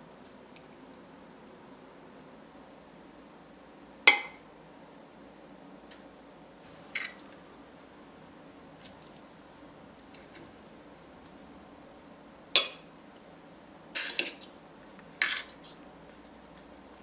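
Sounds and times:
cutlery clinking on a ceramic plate: 7.0s - 7.2s, 14.0s - 14.6s.

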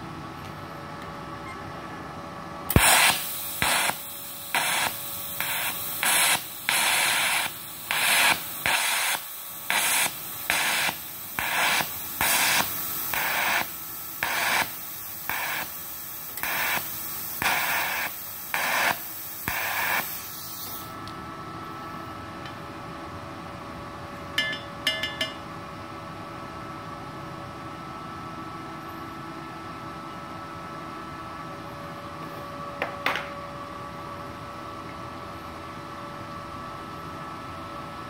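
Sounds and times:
welding arc hissing in pulses: 2.7s - 21.0s.

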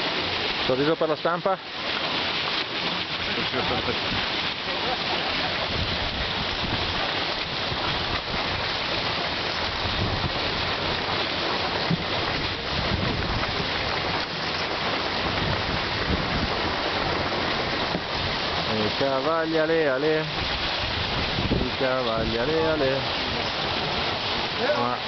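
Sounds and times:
wind buffeting microphone: 3.3s - 25.0s.

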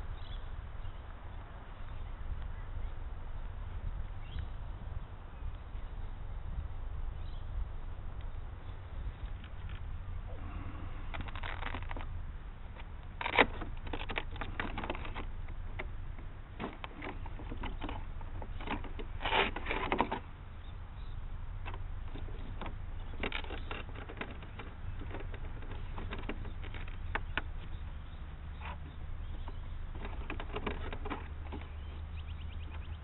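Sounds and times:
wind rumble on microphone: 0.0s - 33.0s
hands handling battery wiring: 9.2s - 20.4s, 21.6s - 32.1s.

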